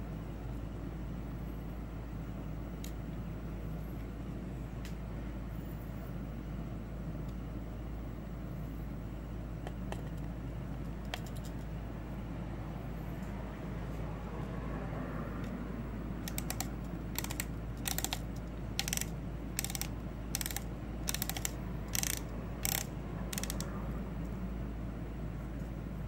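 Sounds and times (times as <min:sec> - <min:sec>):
reel spool clicker ratcheting: 0:16.2 - 0:23.7.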